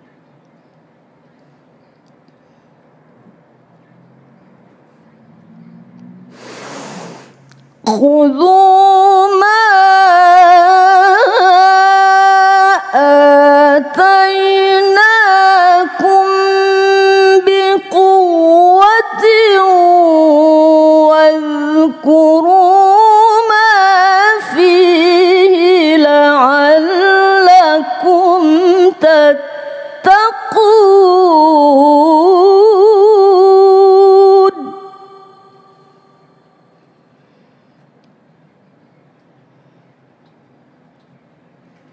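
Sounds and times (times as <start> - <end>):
woman chanting melodically: 7.8 - 36.7.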